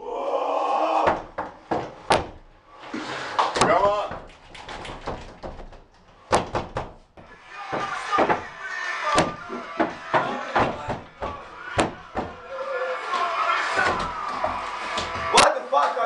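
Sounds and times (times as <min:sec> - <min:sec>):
fists banging on a door: 0:01.0 - 0:02.5, 0:03.6 - 0:08.6, 0:09.2 - 0:12.5, 0:13.8 - 0:15.4.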